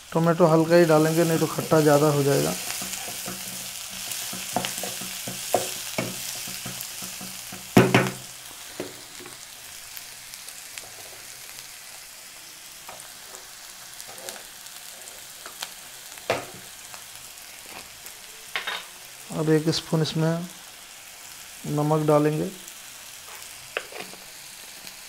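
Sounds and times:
vegetables sizzling in a pan: 0.0s - 25.0s
spatula scraping and knocking pan: 1.1s - 9.4s, 23.8s - 24.2s.

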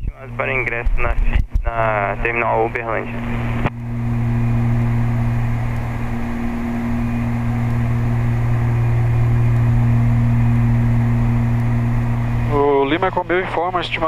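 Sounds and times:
propeller plane engines droning: 0.0s - 14.0s.

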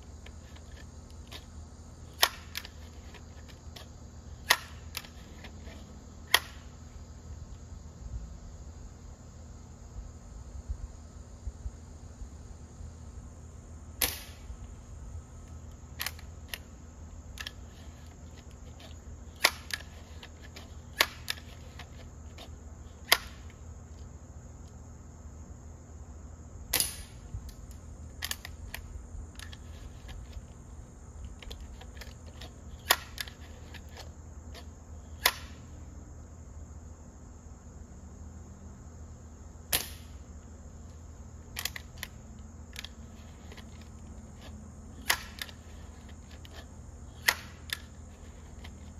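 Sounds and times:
air rifle shots: 14.0s - 14.5s, 26.7s - 27.2s, 39.7s - 40.2s
rifle mechanism clicks: 41.5s - 43.9s, 47.2s - 48.9s.

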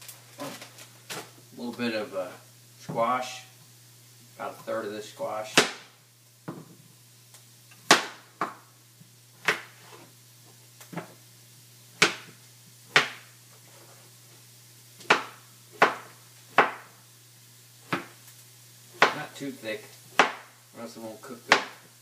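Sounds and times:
knife tapping cutting board: 19.0s - 19.2s.

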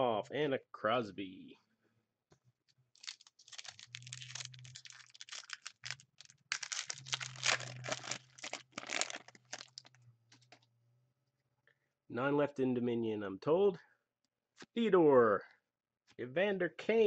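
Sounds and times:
foil wrapper crinkling: 3.0s - 10.0s.

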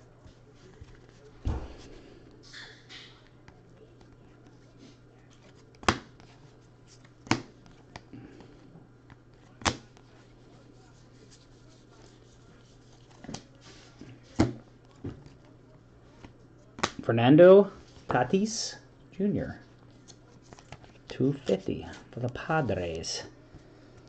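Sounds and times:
faint steady hum: 0.0s - 24.0s
cards clicking against stack: 5.4s - 6.3s, 7.0s - 8.1s, 9.1s - 10.0s, 16.2s - 17.0s.

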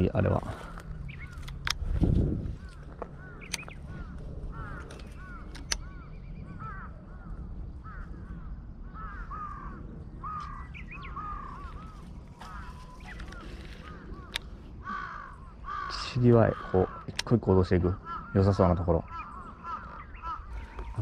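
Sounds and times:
crows cawing: 0.0s - 21.0s
sharp click: 4.8s - 5.9s.

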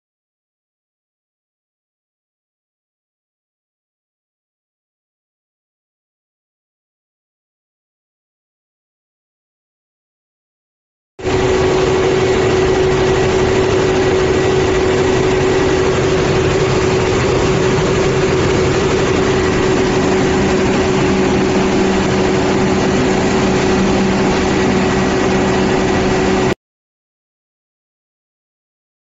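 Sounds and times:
diesel generator engine running: 11.2s - 26.6s
steady tone: 11.2s - 26.6s.

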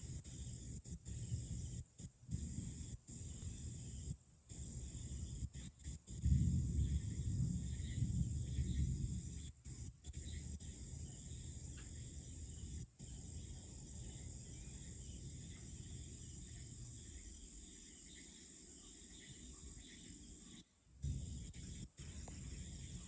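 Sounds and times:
crickets and insects chirping: 0.0s - 23.0s
low rumble: 6.1s - 9.9s.

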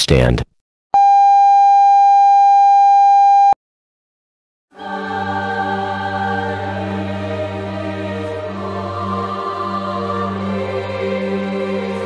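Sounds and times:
slow music with low drone: 4.8s - 12.0s.

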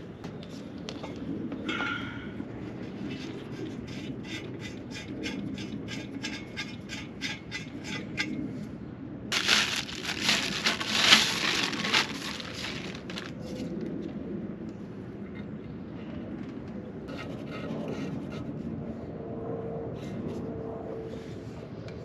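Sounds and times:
loud rustling crinkling: 9.3s - 13.6s.

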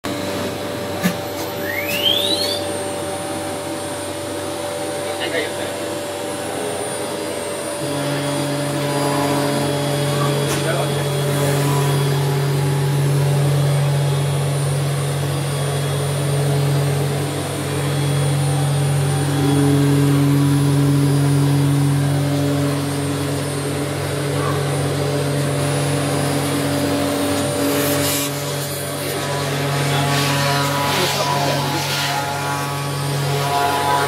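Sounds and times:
router spindle cutting plastic: 25.7s - 34.0s.

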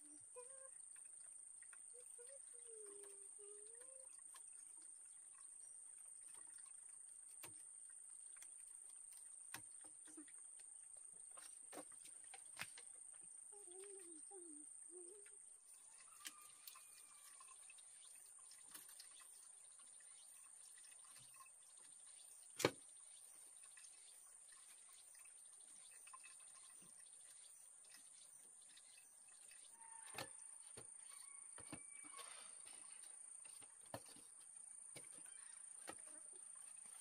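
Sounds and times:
faint wavering calls: 0.0s - 0.8s, 1.8s - 4.2s, 13.5s - 18.2s, 28.8s - 30.4s.

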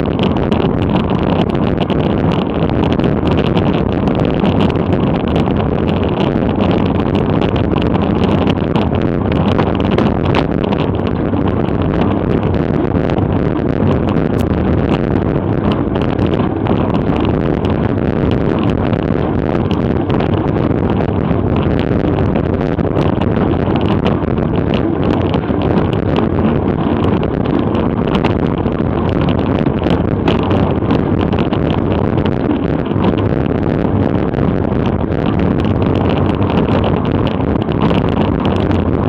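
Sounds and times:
wind buffeting microphone: 0.0s - 39.0s.

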